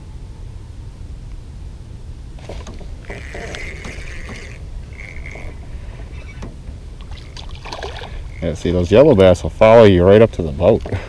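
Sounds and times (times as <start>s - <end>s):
reel clicks: 2.4s - 8.4s
spinning reel whirring: 2.4s - 8.8s.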